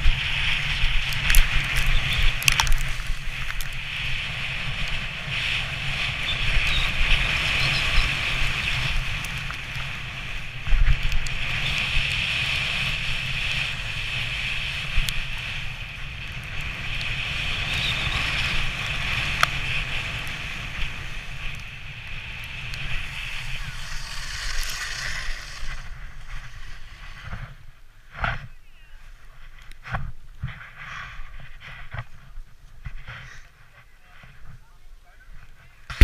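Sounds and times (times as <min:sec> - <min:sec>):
sledge runners scraping over snow: 0:00.0 - 0:28.6
wind buffeting microphone: 0:00.0 - 0:36.0.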